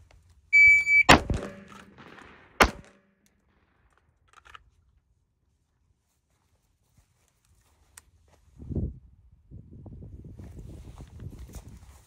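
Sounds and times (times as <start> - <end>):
shot timer beep: 0.6 - 1.7
rifle shot: 0.6 - 3.8
pistol shot: 0.9 - 3.2.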